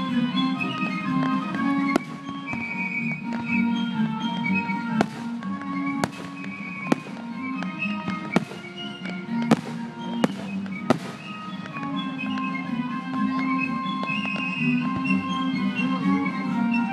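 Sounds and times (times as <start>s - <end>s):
background music: 0.0s - 16.9s
firework shells booming: 1.9s - 2.9s, 4.8s - 11.8s.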